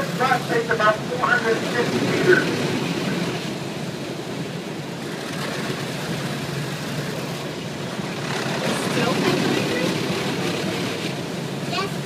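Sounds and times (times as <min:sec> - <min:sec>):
bus wash brushes rumbling: 0:05.1 - 0:12.0.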